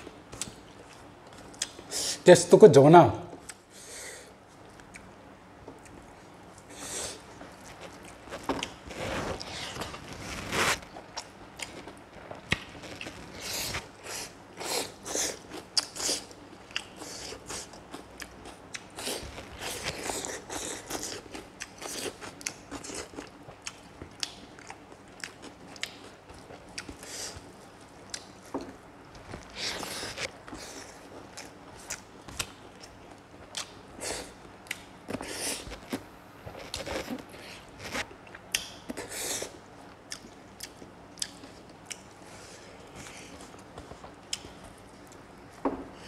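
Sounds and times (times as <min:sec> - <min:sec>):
chewing and crunching: 0:07.4 - 0:36.0.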